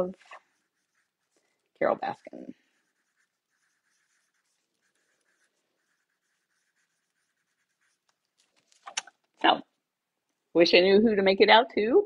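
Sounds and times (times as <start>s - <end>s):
pen scratching on photograph: 0.0s - 9.1s.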